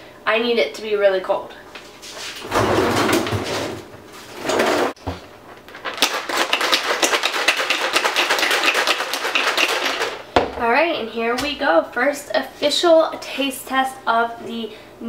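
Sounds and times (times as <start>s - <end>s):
ice rattling in shaken cup: 5.8s - 10.2s
ice dispenser dropping ice cubes: 5.9s - 10.2s.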